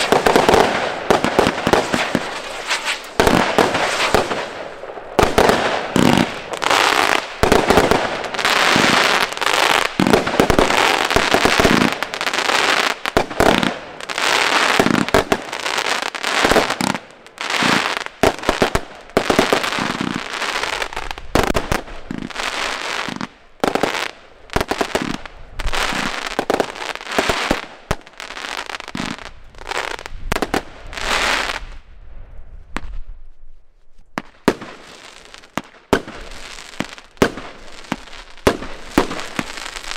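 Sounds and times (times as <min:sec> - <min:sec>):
fireworks banging: 0:00.0 - 0:15.6, 0:34.2 - 0:39.9
firework crackling: 0:00.0 - 0:31.8, 0:34.2 - 0:39.9.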